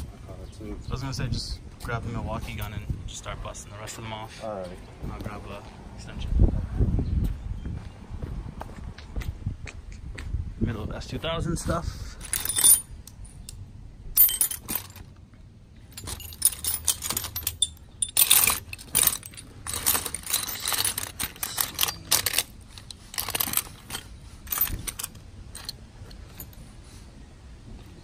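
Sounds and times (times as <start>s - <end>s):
metal tools clinking: 12.2s - 13.6s, 14.2s - 15.2s, 15.8s - 26.7s.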